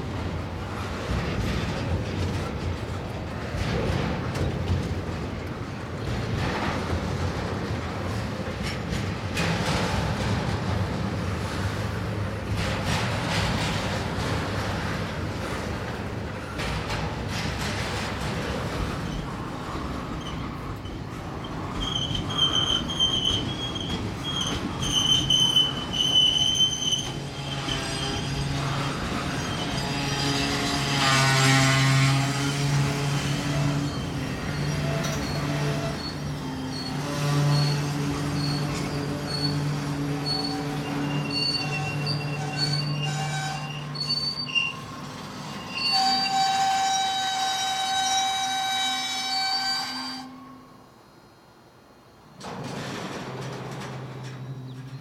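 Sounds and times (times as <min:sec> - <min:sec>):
low rumble of train: 0:00.0 - 0:55.0
train wheels squealing: 0:18.9 - 0:51.1, 0:54.1 - 0:55.0.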